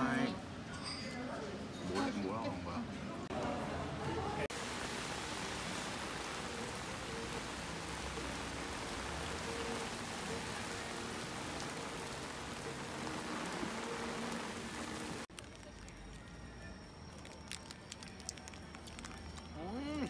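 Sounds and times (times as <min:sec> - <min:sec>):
heavy rain on street: 0:04.2 - 0:15.6.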